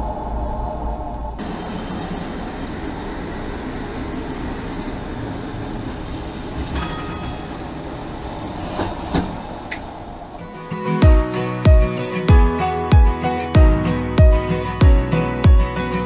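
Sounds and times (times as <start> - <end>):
tram wheels rumbling on rail: 0.0 - 10.5
high metallic ringing: 6.8 - 7.8.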